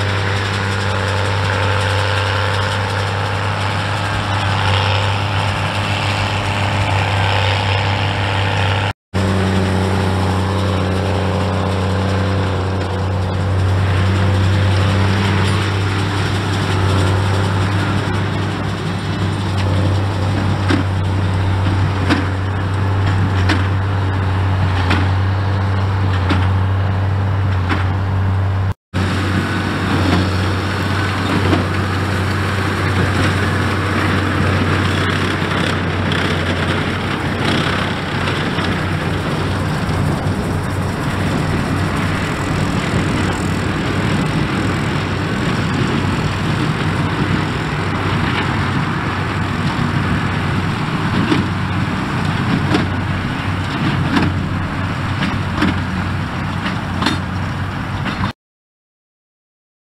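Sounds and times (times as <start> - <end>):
tractor engine running under load: 0.0 - 58.3.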